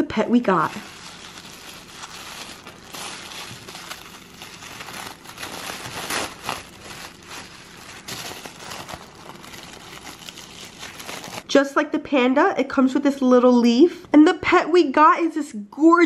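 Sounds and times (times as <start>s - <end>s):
tissue paper crinkling: 0.4s - 11.5s.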